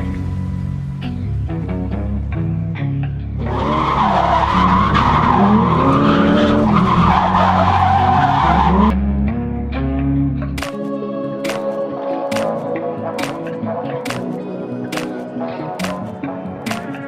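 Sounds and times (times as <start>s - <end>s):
background music with bass: 0.0s - 17.0s
car engine revving: 3.4s - 9.3s
tyres squealing: 3.5s - 8.9s.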